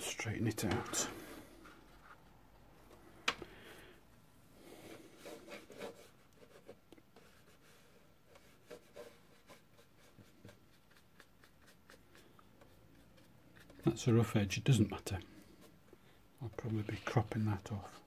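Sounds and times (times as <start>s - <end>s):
paintbrush scratching on paper: 4.8s - 15.8s.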